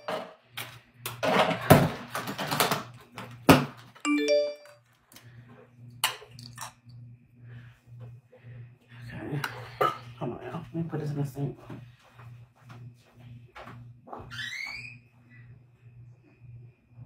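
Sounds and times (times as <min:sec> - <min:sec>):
rising electronic notification chime: 0:04.1 - 0:04.7
low pulsing hum: 0:05.2 - 0:14.1, 0:14.8 - 0:17.0.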